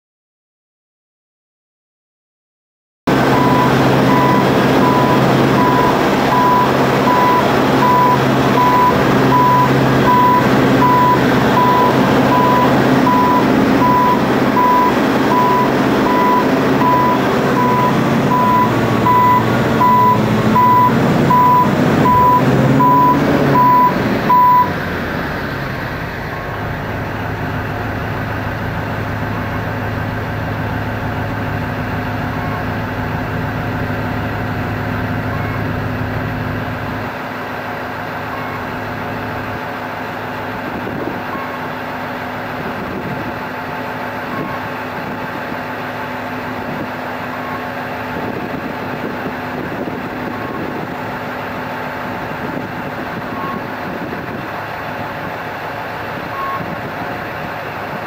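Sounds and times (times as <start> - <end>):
diesel engine running: 3.1 - 58.0
warning beeper beeping: 3.4 - 24.7.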